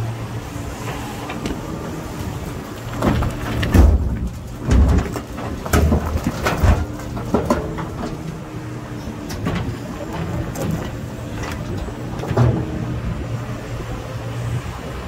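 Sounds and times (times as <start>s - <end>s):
excavator diesel engine running: 0.0s - 15.0s
rock tipping into steel truck bed: 2.9s - 8.5s.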